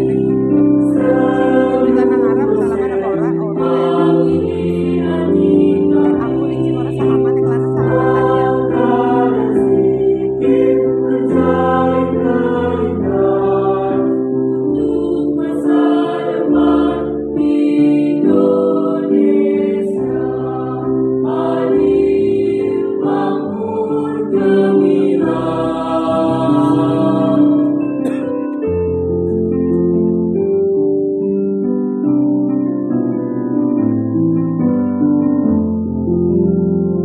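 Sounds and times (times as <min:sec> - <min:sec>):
mixed choir singing in harmony: 0:00.0 - 0:28.5.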